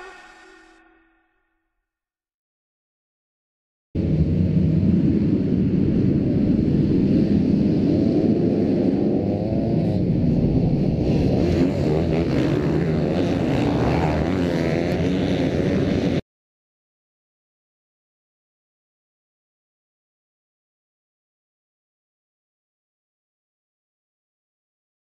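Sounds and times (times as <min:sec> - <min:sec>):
motocross bike engines revving: 0:07.8 - 0:16.2.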